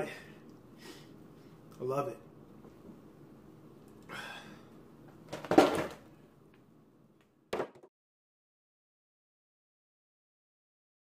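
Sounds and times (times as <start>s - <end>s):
jug and box set down hard: 5.3s - 6.0s.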